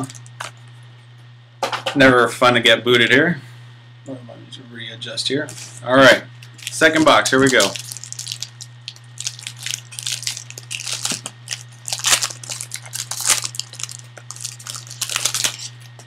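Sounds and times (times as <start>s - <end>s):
foil wrapper crinkling: 0.0s - 0.6s, 5.5s - 5.8s, 6.4s - 16.0s
steady low hum: 0.0s - 16.0s.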